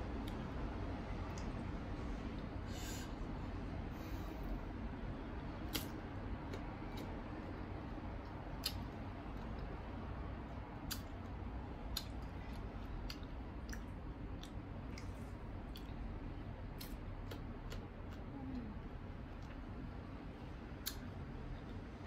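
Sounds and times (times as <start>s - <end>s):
steady low hum: 0.0s - 22.0s
chewing crisp fruit: 5.6s - 9.8s, 10.5s - 21.9s
wet mouth clicks: 5.7s - 7.1s, 8.6s - 8.8s, 10.9s - 11.1s, 20.8s - 21.1s.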